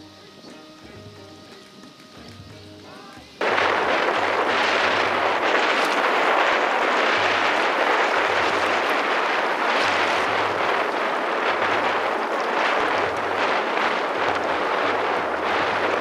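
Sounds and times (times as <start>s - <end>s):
wind buffeting microphone: 3.4s - 16.0s.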